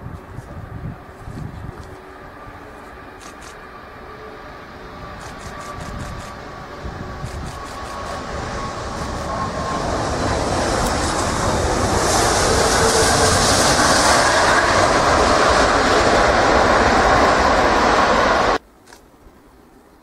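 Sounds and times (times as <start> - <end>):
jet engines rumbling with hiss: 0.0 - 18.6.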